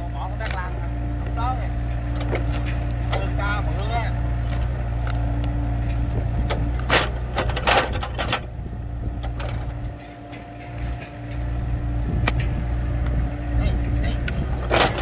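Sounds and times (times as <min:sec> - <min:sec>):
excavator diesel engine running: 0:00.0 - 0:15.0
stump cracking and scraping: 0:00.4 - 0:08.5.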